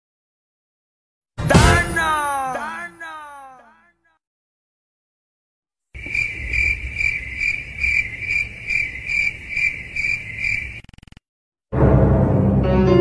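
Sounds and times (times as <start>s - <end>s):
crickets chirping: 6.0s - 11.2s.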